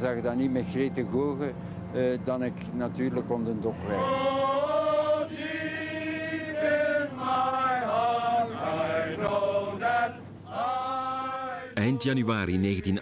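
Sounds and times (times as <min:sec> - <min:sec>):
choir singing long notes: 0:03.7 - 0:12.2.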